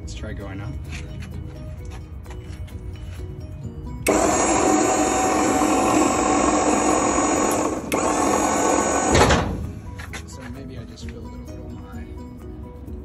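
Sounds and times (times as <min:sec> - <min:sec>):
hydraulic pump motor running: 0:04.0 - 0:10.1.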